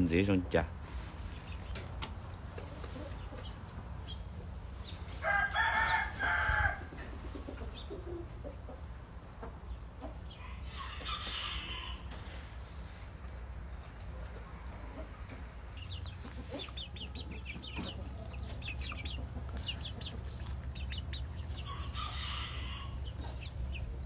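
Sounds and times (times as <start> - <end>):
young rooster crowing: 5.1 - 7.1, 10.3 - 12.3, 21.2 - 23.5.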